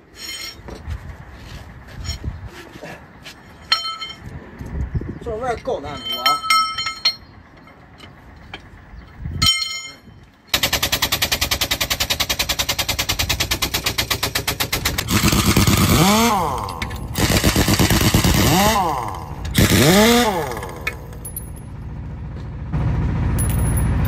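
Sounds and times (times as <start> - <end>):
metallic clink: 0.1 - 0.8, 3.5 - 4.3, 5.8 - 8.2, 9.4 - 10.2, 20.9 - 21.8, 23.4 - 24.0
pneumatic impact wrench rattling: 10.5 - 21.6.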